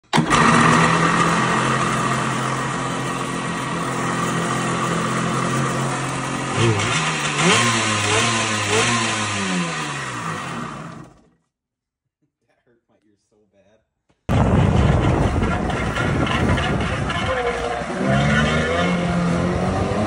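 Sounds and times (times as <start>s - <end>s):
jet ski engine idling and revving: 0.1s - 11.3s, 15.8s - 20.0s.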